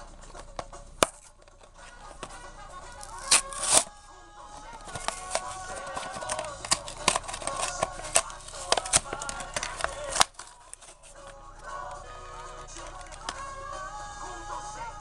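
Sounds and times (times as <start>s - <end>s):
music: 0.0s - 15.0s
toy packaging tearing and crinkling: 1.0s - 3.9s, 4.7s - 11.3s, 12.7s - 13.5s.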